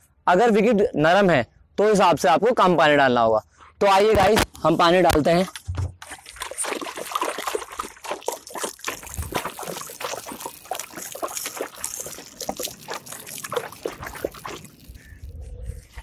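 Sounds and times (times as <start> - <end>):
water pouring onto dirt: 6.0 - 16.0.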